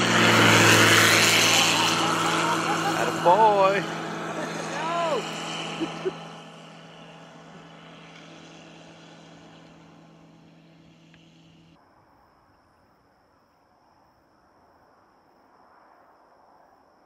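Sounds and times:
light aircraft engine droning: 0:00.0 - 0:11.8.

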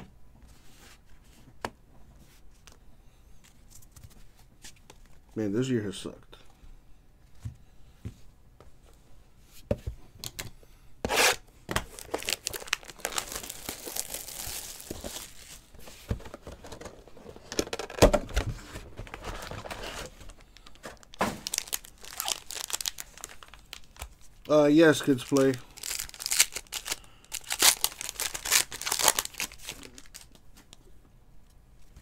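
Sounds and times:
foil packs crinkling: 0:11.8 - 0:15.7, 0:18.9 - 0:30.4
shrink wrap tearing: 0:11.9 - 0:15.6, 0:20.7 - 0:24.1, 0:24.8 - 0:30.4.

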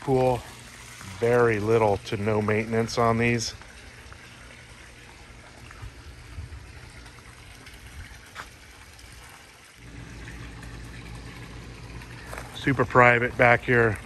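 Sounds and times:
low machine hum: 0:00.0 - 0:08.9, 0:09.8 - 0:14.0
water trickling and splashing: 0:00.0 - 0:14.0.

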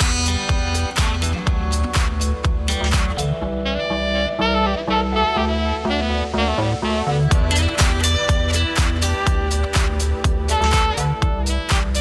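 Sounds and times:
kick drum beat: 0:00.0 - 0:03.4, 0:07.3 - 0:12.0
saxophone melody: 0:00.0 - 0:12.0
upbeat dance music: 0:00.0 - 0:12.0.

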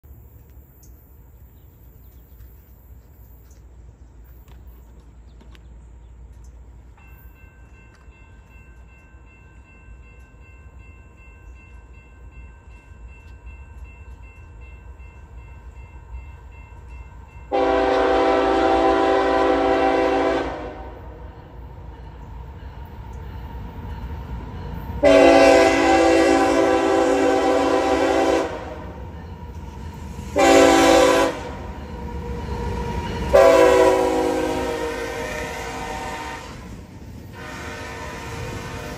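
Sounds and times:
train rumbling: 0:00.0 - 0:38.9
locomotive horn blasts: 0:17.5 - 0:21.3, 0:25.0 - 0:29.0, 0:30.3 - 0:31.7, 0:33.3 - 0:36.7, 0:37.3 - 0:38.9.

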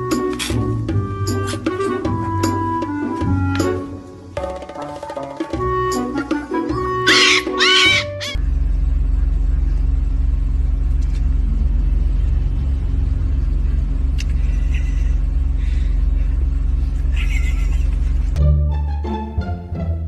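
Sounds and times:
car engine droning: 0:08.4 - 0:18.4
road noise inside car: 0:08.4 - 0:18.4.

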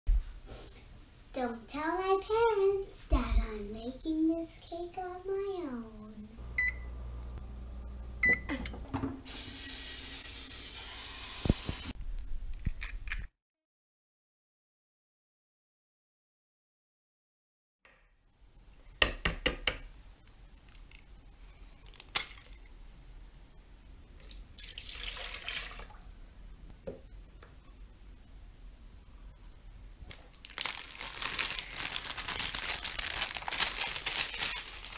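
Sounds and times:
oven control panel beeps: 0:06.6 - 0:07.0, 0:08.2 - 0:08.7
aerosol cooking spray hissing: 0:09.3 - 0:12.0
liquid pouring into plastic bowl: 0:24.2 - 0:26.1.

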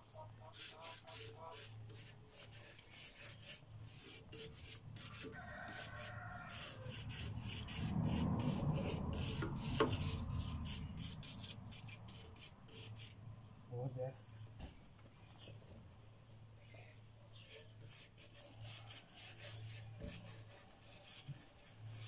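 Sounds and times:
sanding metal by hand: 0:00.4 - 0:13.2, 0:17.4 - 0:22.0.

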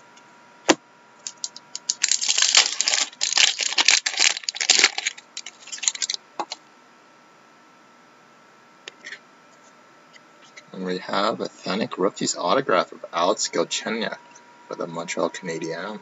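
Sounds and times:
plastic wrapper crinkling: 0:01.2 - 0:06.5.

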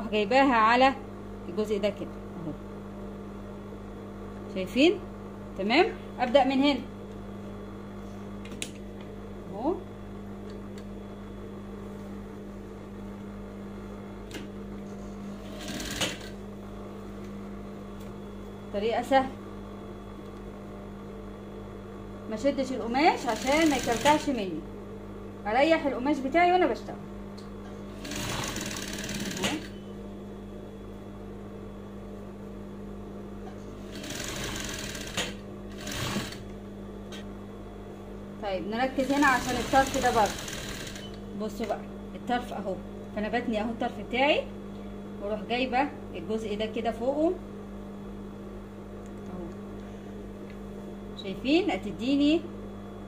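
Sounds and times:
sewing machine motor hum: 0:14.2 - 0:16.7, 0:23.1 - 0:24.5, 0:27.7 - 0:29.9, 0:33.5 - 0:37.2, 0:38.8 - 0:41.8
rapid machine stitching: 0:15.4 - 0:16.4, 0:23.2 - 0:24.3, 0:27.9 - 0:29.7, 0:33.8 - 0:36.4, 0:39.0 - 0:41.2.

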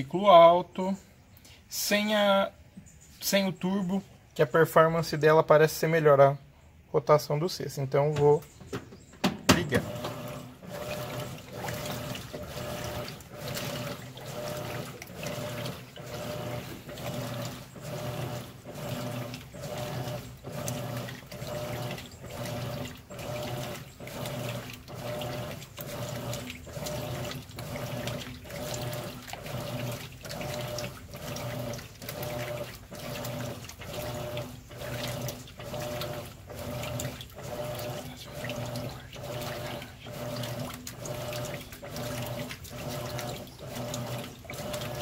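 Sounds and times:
washing machine motor hum: 0:07.6 - 0:45.0
water sloshing: 0:08.1 - 0:45.0.

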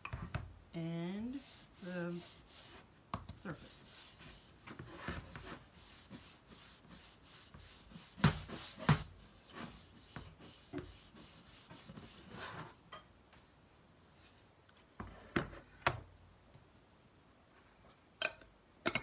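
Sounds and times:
cloth rag rubbing wood: 0:01.1 - 0:12.8.

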